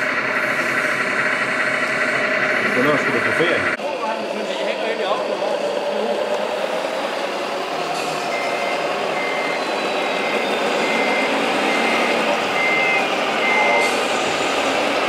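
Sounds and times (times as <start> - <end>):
hall noise: 0.0 - 15.0
reversing beeper: 7.8 - 15.0.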